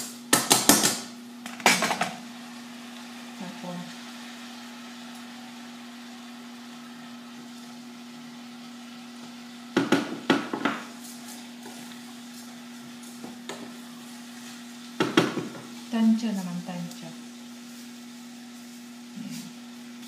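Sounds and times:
wooden spoon stirring a pot: 0:10.2 - 0:16.0.

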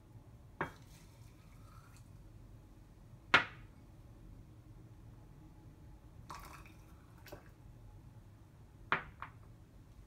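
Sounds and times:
soft brushing: 0:00.7 - 0:02.2.

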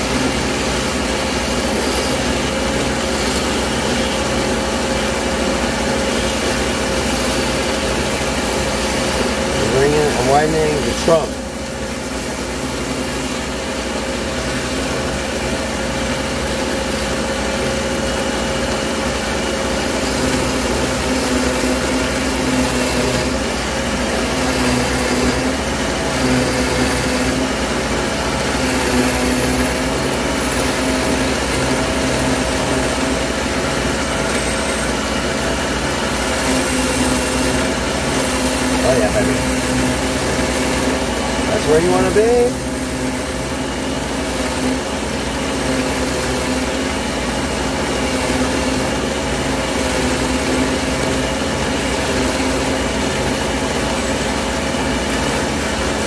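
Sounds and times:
ring saw grinding glass: 0:00.0 - 0:11.4, 0:28.3 - 0:40.8, 0:50.6 - 0:56.0.

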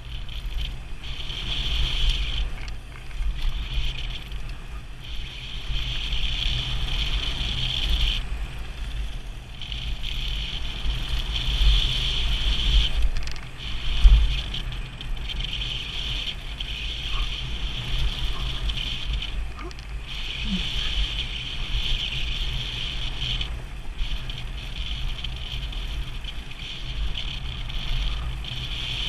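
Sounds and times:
steady high buzz: 0:00.0 - 0:29.0
wind buffeting microphone: 0:00.0 - 0:29.0.

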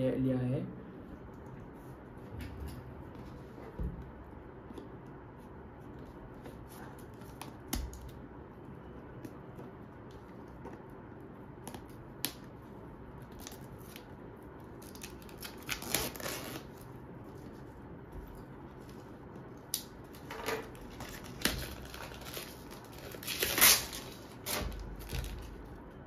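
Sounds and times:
blade scratching plastic wrap: 0:14.8 - 0:16.9, 0:20.6 - 0:25.6.

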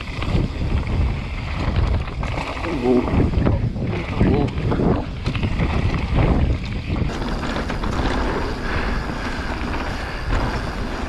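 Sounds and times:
bike clicks and rattles: 0:00.0 - 0:11.0
wind on microphone: 0:00.0 - 0:11.0
tyres rolling over dirt: 0:04.2 - 0:11.0.

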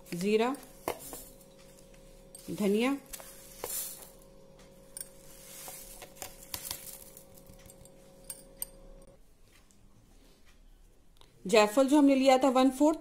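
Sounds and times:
faint steady hum: 0:00.0 - 0:13.0
spice seeds clinking in steel jar: 0:04.9 - 0:09.0.

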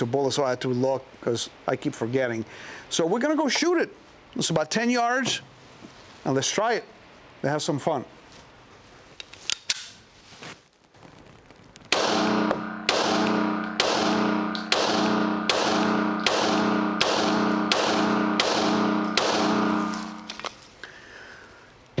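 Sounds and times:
pistol shots ringing indoors: 0:11.9 - 0:20.4.

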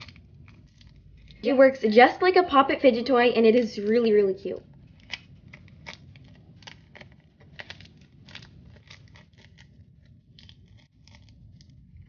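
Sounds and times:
crinkly paper clicks: 0:00.0 - 0:01.5, 0:04.6 - 0:12.0.

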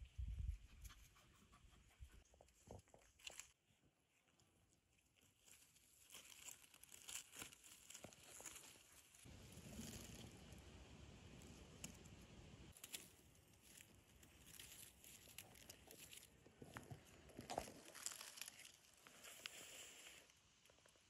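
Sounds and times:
leaves rustling and crackling: 0:05.2 - 0:20.3.

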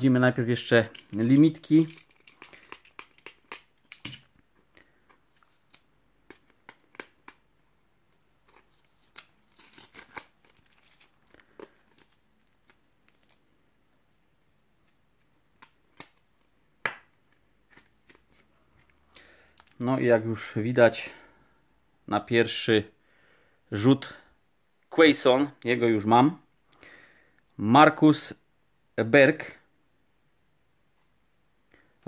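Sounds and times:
plastic sleeve rustle: 0:00.4 - 0:04.2, 0:04.9 - 0:07.4, 0:08.1 - 0:13.5
plastic card sleeve crinkling: 0:00.4 - 0:13.6, 0:17.6 - 0:20.0.

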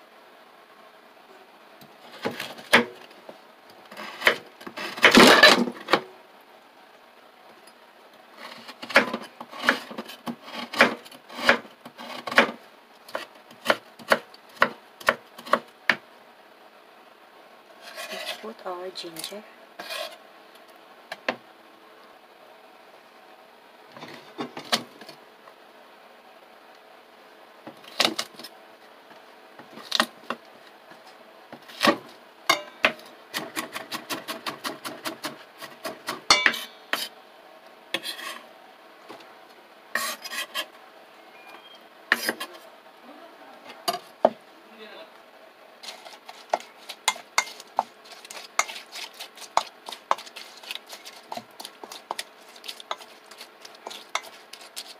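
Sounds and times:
knife chopping on wooden board: 0:08.8 - 0:09.9, 0:10.6 - 0:15.6, 0:45.9 - 0:54.9
utensil scraping in bowl: 0:17.8 - 0:18.6, 0:19.8 - 0:20.2, 0:38.0 - 0:38.5, 0:40.0 - 0:40.7, 0:42.1 - 0:42.7, 0:45.8 - 0:54.9
utensils clinking on steel bowl: 0:36.3 - 0:36.7, 0:45.8 - 0:54.9.

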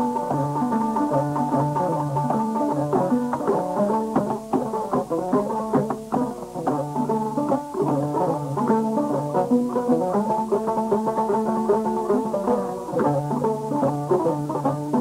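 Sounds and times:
plucked string instrument music: 0:00.0 - 0:15.0.

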